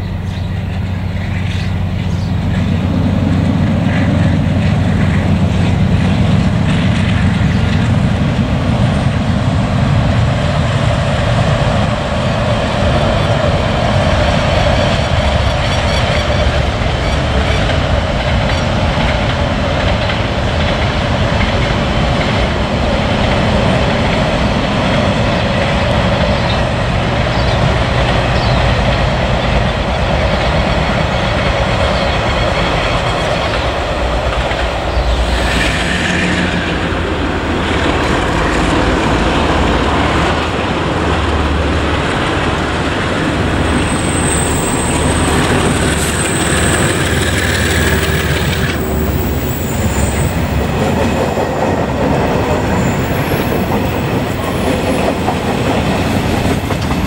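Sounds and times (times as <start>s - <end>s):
high wheel squeal: 43.8s - 50.7s.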